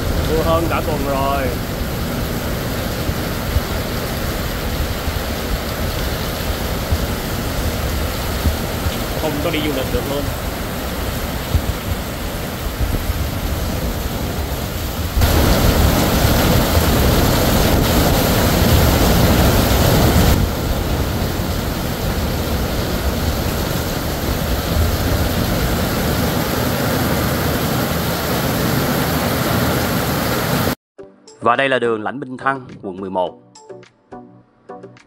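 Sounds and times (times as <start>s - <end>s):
heavy rain on roofs and pavement: 0.0s - 30.8s.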